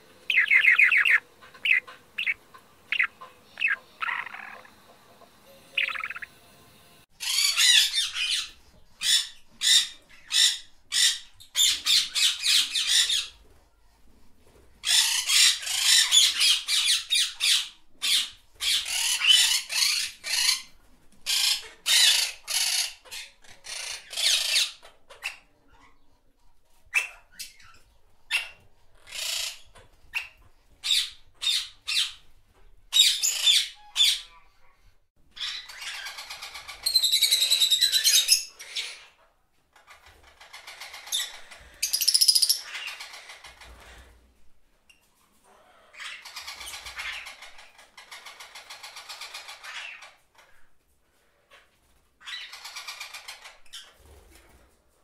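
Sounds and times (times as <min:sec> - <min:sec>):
budgerigars chirping: 0:00.3 - 0:06.3, 0:40.3 - 0:43.6.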